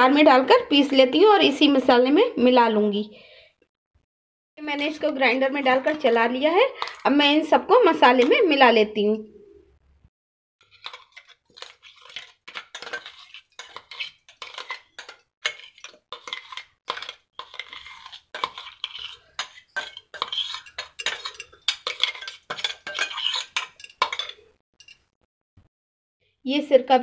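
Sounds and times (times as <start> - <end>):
spoon scraping metal jar: 4.7 - 8.6, 10.6 - 25.1.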